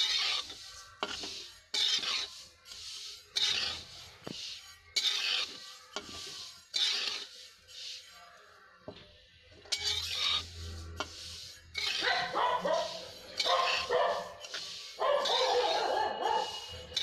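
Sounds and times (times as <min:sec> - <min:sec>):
spatula scraping and stirring seeds: 0:00.0 - 0:17.0
dog barking: 0:12.0 - 0:14.4, 0:15.0 - 0:16.7.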